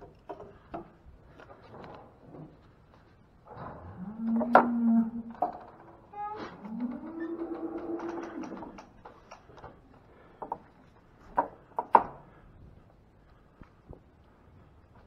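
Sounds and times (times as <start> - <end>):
cow lowing: 3.5 - 8.8.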